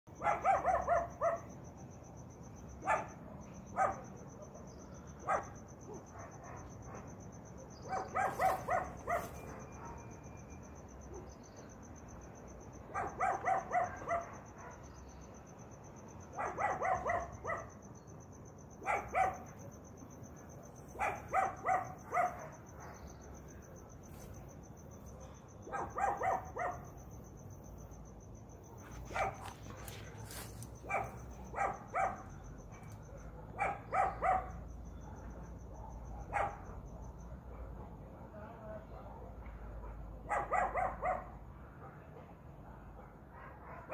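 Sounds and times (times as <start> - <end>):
high insect trill: 0.1 - 37.6
dog barking: 0.2 - 1.6, 2.8 - 4.2, 5.2 - 11.4, 12.9 - 15.0, 16.3 - 17.8, 18.8 - 19.7, 20.9 - 23.5, 25.2 - 27.1, 28.7 - 43.9.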